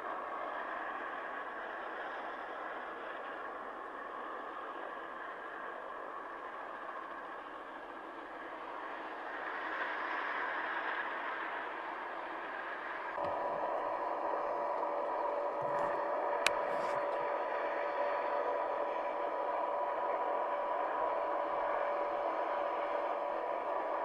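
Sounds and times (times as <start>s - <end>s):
helicopter turbine whine and rotor: 0.0s - 24.0s.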